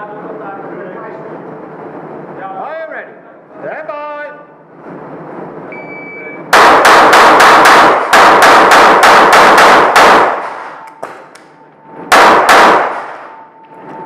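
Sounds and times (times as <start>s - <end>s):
shot timer beep: 5.7s - 6.4s
pistol shots echoing: 6.5s - 11.2s, 12.1s - 13.4s.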